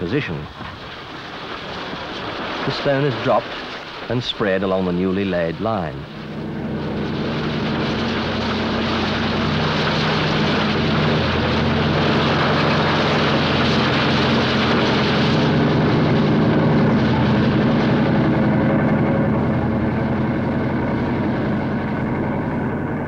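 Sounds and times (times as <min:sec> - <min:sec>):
low engine drone: 0:00.0 - 0:23.0
ballast stone rushing: 0:00.5 - 0:18.4.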